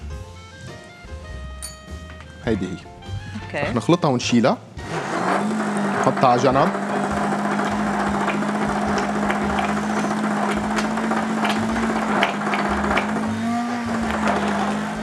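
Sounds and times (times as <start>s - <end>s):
immersion blender motor hum: 4.8s - 15.0s
puree churning: 5.0s - 15.0s.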